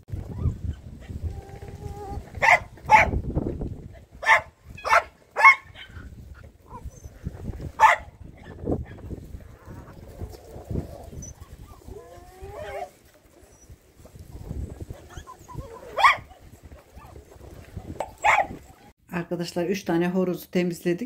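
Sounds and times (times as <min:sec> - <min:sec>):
dog barking: 0:02.4 - 0:03.2, 0:04.2 - 0:05.9, 0:07.8 - 0:08.6, 0:15.9 - 0:16.3, 0:18.2 - 0:18.6.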